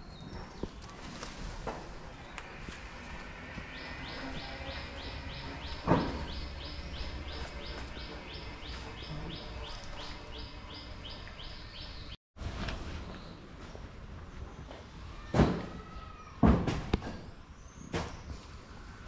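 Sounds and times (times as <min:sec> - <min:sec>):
loud thump: 0:05.8 - 0:06.4.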